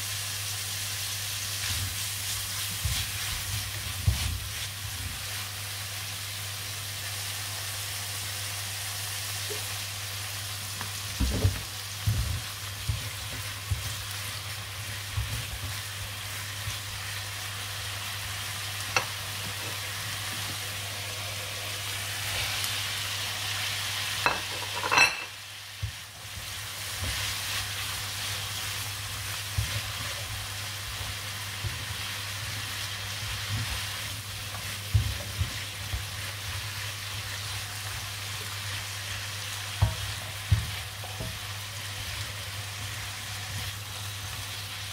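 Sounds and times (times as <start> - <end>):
stir-fry sizzling in a pan: 0.0 - 44.9
spatula knocking and scraping pan: 2.6 - 5.3, 24.3 - 27.5, 39.7 - 41.5.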